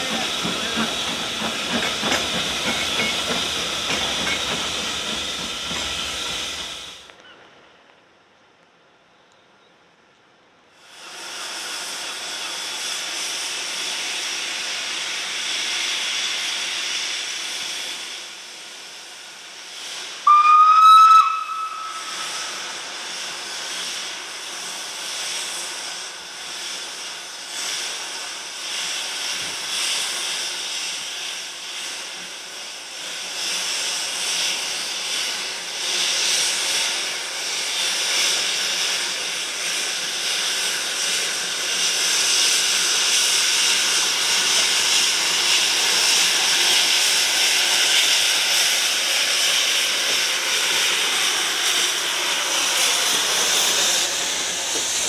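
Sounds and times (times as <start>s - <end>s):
locomotive pulsing exhaust: 0.0s - 7.1s, 10.9s - 55.0s
steam locomotive hissing: 0.0s - 7.2s, 10.7s - 55.0s
steam whistle blast: 20.2s - 22.8s.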